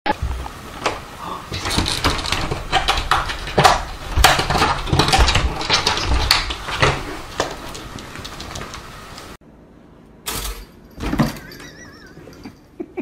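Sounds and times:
plastic pet door flap rattling: 0:01.6 - 0:08.8.

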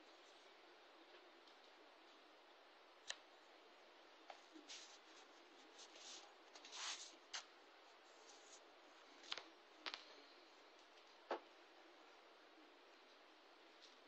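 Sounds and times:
scratchy rustle: 0:04.6 - 0:07.5.

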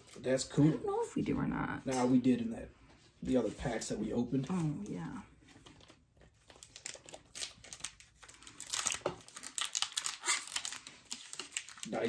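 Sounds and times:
foil wrapper crinkling: 0:04.4 - 0:12.0.

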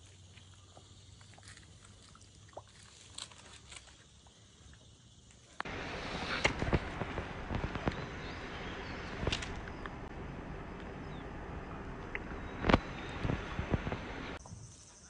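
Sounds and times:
steady outdoor hiss: 0:00.0 - 0:15.0
footsteps: 0:05.6 - 0:14.4.

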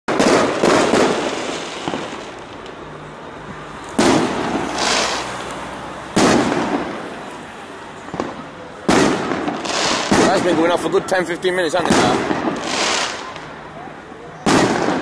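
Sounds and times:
firework shells bursting: 0:00.1 - 0:02.8, 0:03.9 - 0:07.1, 0:08.1 - 0:10.9.

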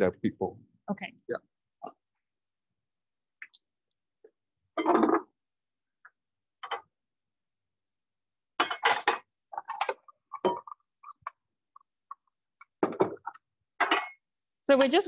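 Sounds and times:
dishes clinking: 0:08.6 - 0:10.8, 0:12.6 - 0:15.0.

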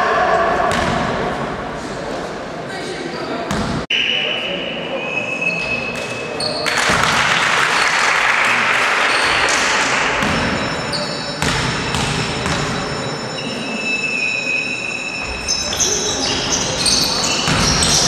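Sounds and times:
sports hall noise: 0:00.0 - 0:18.0
basketball bouncing on gym floor: 0:03.5 - 0:03.8, 0:10.2 - 0:10.8, 0:17.4 - 0:18.0.

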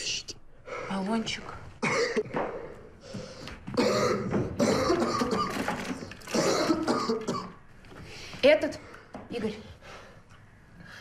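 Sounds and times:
man coughing and gasping: 0:01.8 - 0:02.4, 0:03.8 - 0:05.6, 0:06.3 - 0:07.6.

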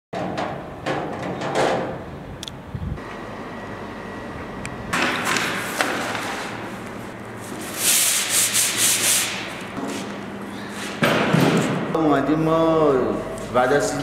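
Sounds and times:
hand sanding wood: 0:07.4 - 0:10.2.

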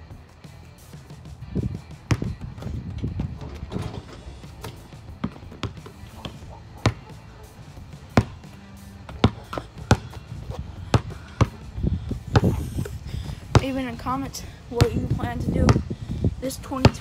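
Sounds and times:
music playing: 0:00.0 - 0:17.0
basketball bouncing: 0:01.6 - 0:12.8, 0:13.4 - 0:14.0, 0:14.8 - 0:15.9.

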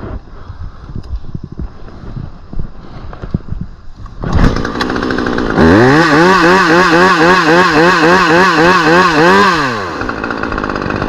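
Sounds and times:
chainsaw starting and revving: 0:04.2 - 0:11.0.

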